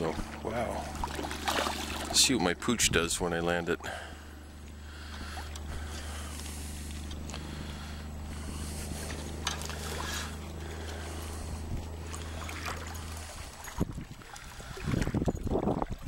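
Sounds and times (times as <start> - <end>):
river water flowing: 0.0 - 2.8, 3.5 - 15.1
water splashes: 0.0 - 2.8, 8.6 - 11.4, 12.0 - 16.0
low hum: 0.0 - 16.0
wind: 0.0 - 16.0.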